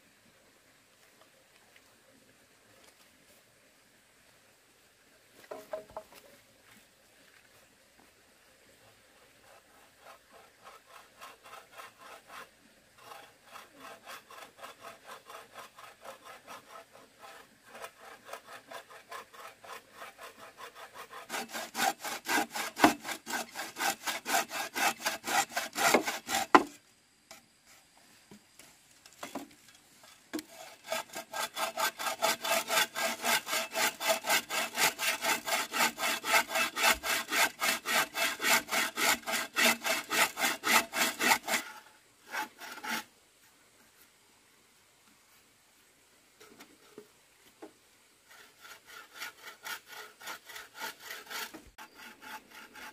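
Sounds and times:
hand saw rasping wood: 0:09.2 - 0:26.8, 0:30.4 - 0:43.1, 0:48.3 - 0:52.9.

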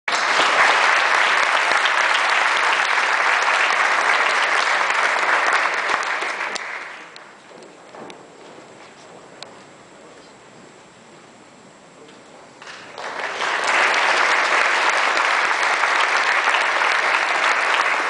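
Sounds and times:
audience applauding: 0:00.1 - 0:07.6, 0:12.6 - 0:18.0.

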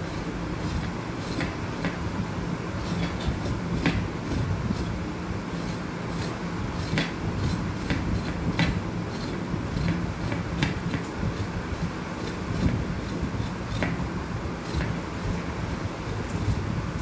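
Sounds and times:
steady low hum: 0:00.0 - 0:17.0
knife scraping vegetable skin: 0:00.1 - 0:02.0, 0:02.8 - 0:16.6.

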